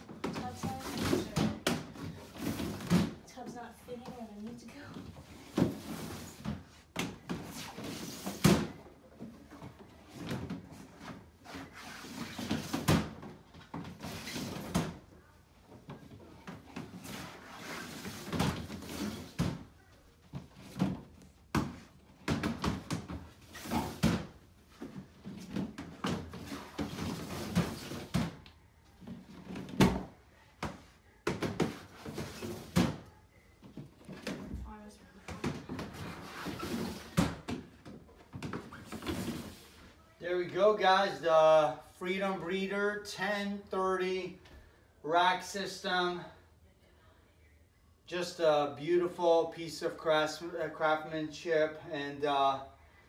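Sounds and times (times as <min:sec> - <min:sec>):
plastic tubs sliding: 0:16.8 - 0:19.5.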